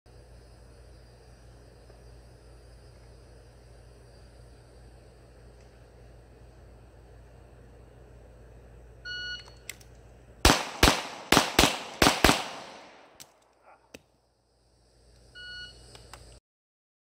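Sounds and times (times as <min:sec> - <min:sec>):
pistol shots: 0:10.4 - 0:13.3.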